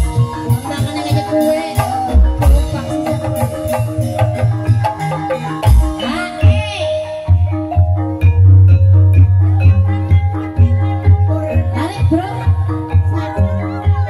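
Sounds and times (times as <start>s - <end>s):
deep hand-drum beats: 0.0s - 14.0s
melody of struck pitched keys: 1.4s - 14.0s.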